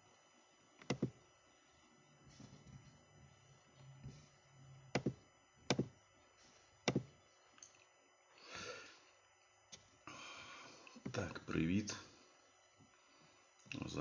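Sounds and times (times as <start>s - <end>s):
faint low hum: 0.0s - 14.0s
breathy exhale: 8.4s - 9.1s, 10.0s - 10.9s.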